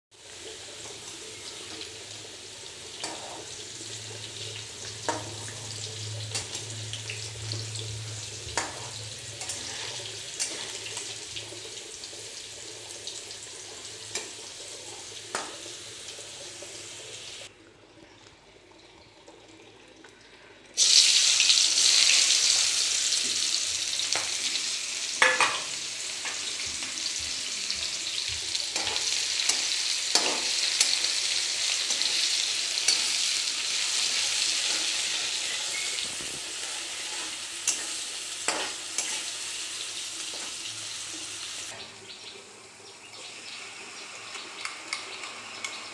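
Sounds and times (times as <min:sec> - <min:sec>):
onions sizzling loudly in oil: 0:00.1 - 0:17.5, 0:20.8 - 0:42.2, 0:42.9 - 0:45.9
potatoes frying in hot oil: 0:00.1 - 0:17.5, 0:20.8 - 0:45.9
spatula scraping and tapping pan: 0:03.0 - 0:03.6, 0:08.5 - 0:11.1, 0:28.7 - 0:31.0, 0:34.3 - 0:39.3.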